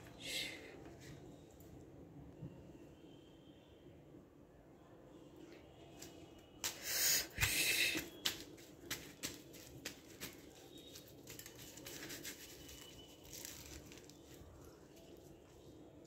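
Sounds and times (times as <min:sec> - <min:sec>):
flatbread rustling and crackling: 0:05.8 - 0:16.0.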